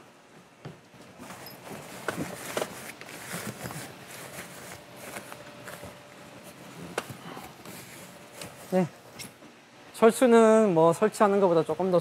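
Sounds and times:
tent fabric rustling: 0:01.1 - 0:09.1.

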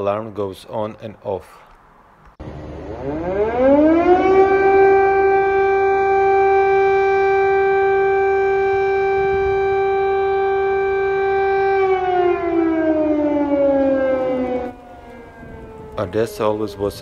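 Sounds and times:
air-raid siren wailing: 0:02.4 - 0:17.0.

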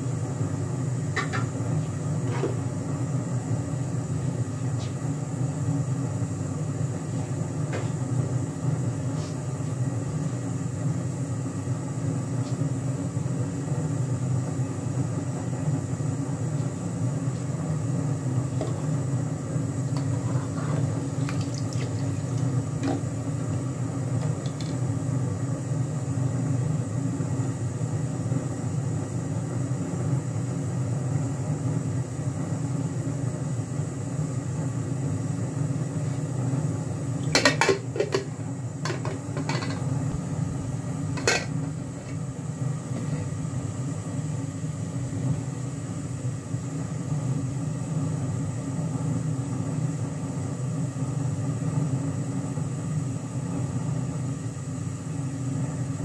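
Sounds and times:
gas burner roar: 0:00.0 - 0:56.0.

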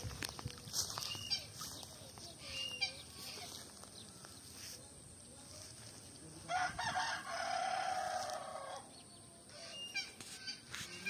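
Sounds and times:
rooster crowing: 0:06.5 - 0:08.9.

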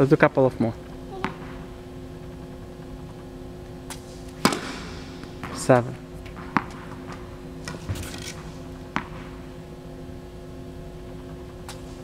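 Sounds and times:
steady low hum: 0:00.0 - 0:12.0
tennis ball bouncing on hard court: 0:01.2 - 0:01.6, 0:04.4 - 0:08.0, 0:08.9 - 0:09.4.

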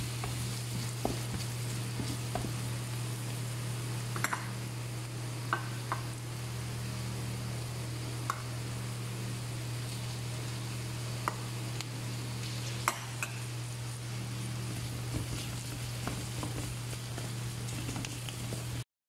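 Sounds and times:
wooden spatula stirring: 0:00.0 - 0:03.2, 0:14.7 - 0:18.8
onion sizzling in oil: 0:00.0 - 0:18.8
steady low hum: 0:00.0 - 0:18.8.

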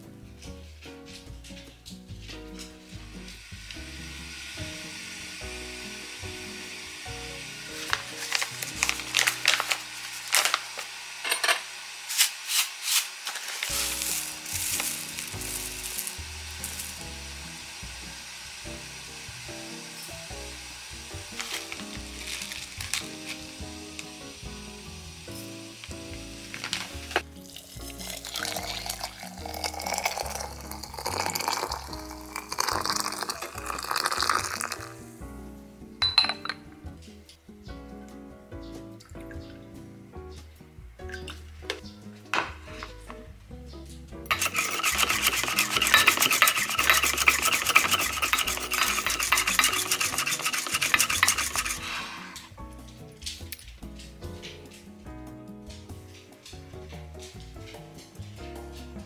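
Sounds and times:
soft background music: 0:00.0 - 0:10.5, 0:13.7 - 0:59.0
whisk pumping in milk: 0:03.1 - 0:11.0, 0:12.0 - 0:34.9, 0:44.3 - 0:52.5
water pouring into teapot: 0:27.1 - 0:35.1, 0:44.3 - 0:52.4.

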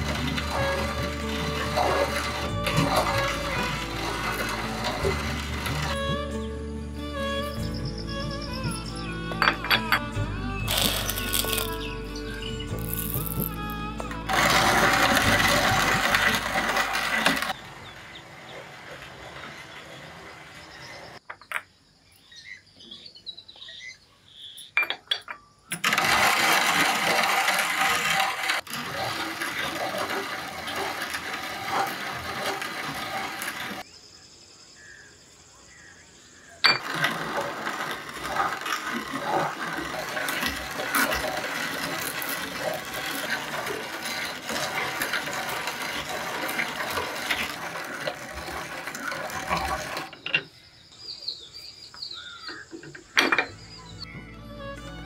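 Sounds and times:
coffee grinder crunching and rattling: 0:00.0 - 0:06.5, 0:07.2 - 0:21.2, 0:25.7 - 0:33.9, 0:36.7 - 0:50.3.

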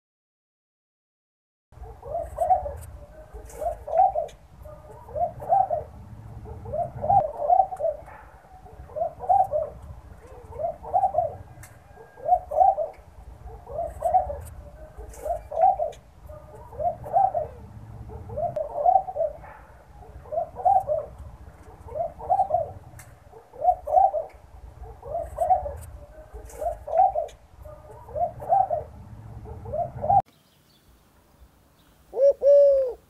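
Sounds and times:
dove cooing: 0:01.8 - 0:30.2, 0:32.1 - 0:33.0.

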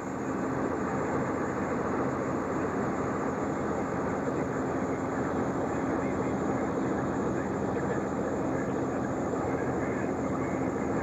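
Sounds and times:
engine humming steadily: 0:00.0 - 0:11.0.

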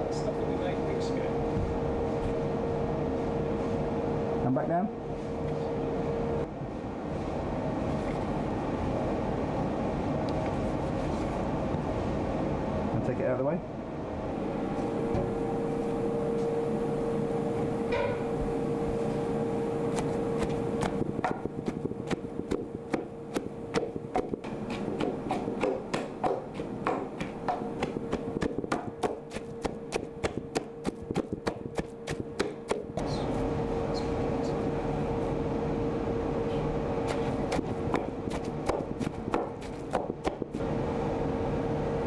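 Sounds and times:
steady single-tone hum: 0:00.0 - 0:42.0
wooden pestle pounding in mortar: 0:20.4 - 0:33.0, 0:37.1 - 0:40.6.

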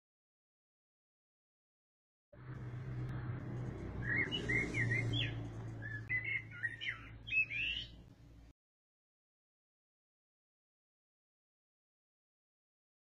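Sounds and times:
low steady hum: 0:02.4 - 0:08.5
small birds chirping: 0:03.7 - 0:08.1.

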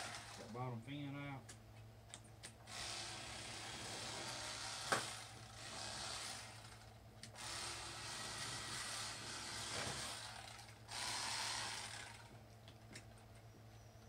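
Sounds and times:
electric fillet knife buzzing: 0:02.7 - 0:12.3.

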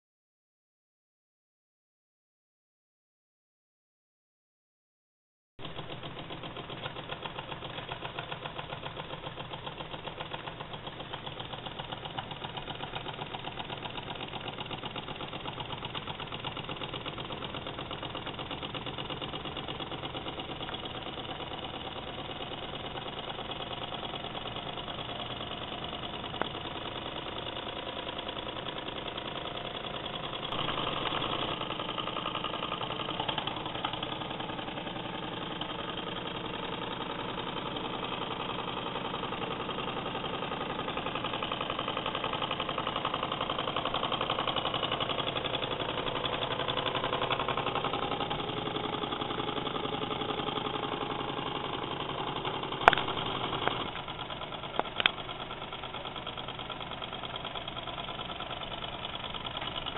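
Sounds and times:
toy steam engine running: 0:06.0 - 0:59.9.

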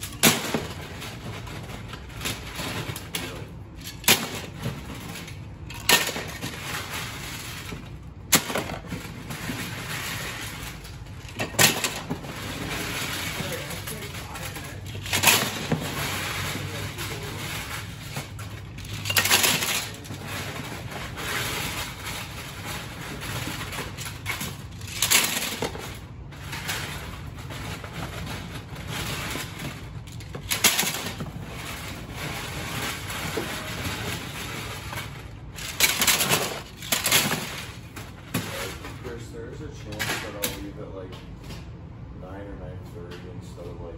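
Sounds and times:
plastic bricks clattering: 0:00.0 - 0:39.0
plastic bag rustling: 0:00.0 - 0:39.2.

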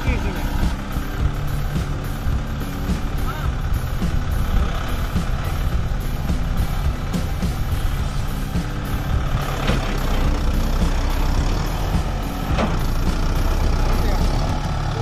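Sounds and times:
tractor diesel engine running: 0:00.0 - 0:15.0.

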